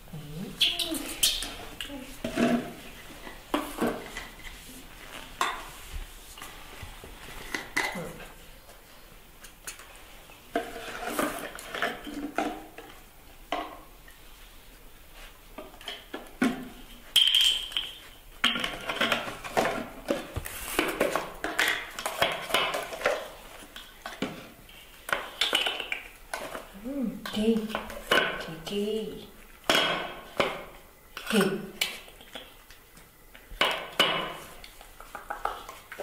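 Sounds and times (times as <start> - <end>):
feeding items clinking and rattling: 15.7 - 24.5.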